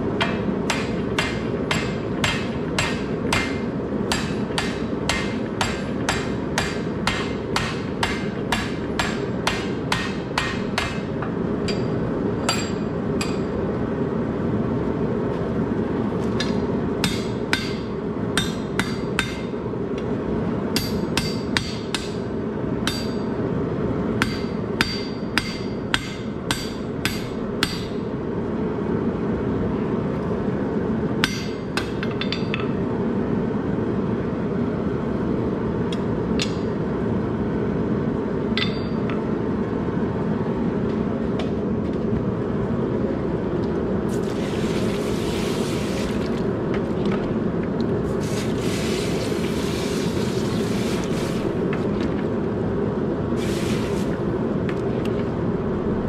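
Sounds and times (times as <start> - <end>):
hammer ringing on hot steel: 0.2 - 13.6, 17.0 - 19.5, 20.7 - 22.2, 22.8 - 23.4, 24.2 - 28.0, 31.2 - 32.7, 38.6 - 39.2.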